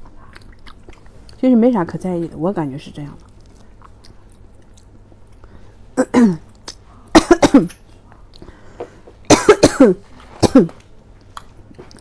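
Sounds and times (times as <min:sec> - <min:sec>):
person coughing: 0:06.0 - 0:06.4, 0:07.1 - 0:07.8, 0:09.3 - 0:10.8.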